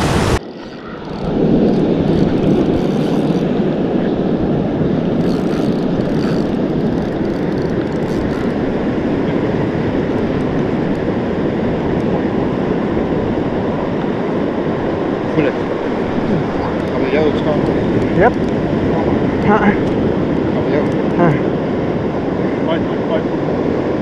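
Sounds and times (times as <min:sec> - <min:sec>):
surf breaking on beach: 0:00.0 - 0:24.0
wind on microphone: 0:00.0 - 0:24.0.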